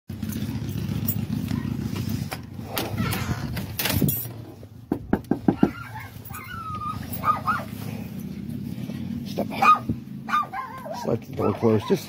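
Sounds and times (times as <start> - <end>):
dog whining and yipping: 5.5 - 7.8, 9.6 - 12.0.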